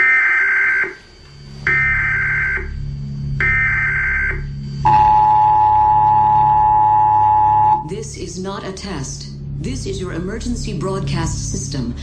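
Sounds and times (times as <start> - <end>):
low droning hum: 0.0 - 12.0
screeching data bursts: 1.7 - 2.8, 3.4 - 7.8
two-pitch attention tone: 4.9 - 7.9.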